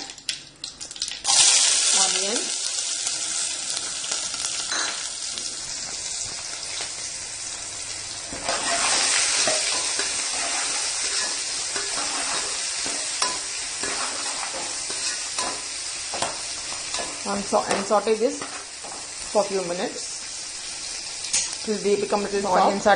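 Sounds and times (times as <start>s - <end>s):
onions sizzling in oil: 0.0s - 22.9s.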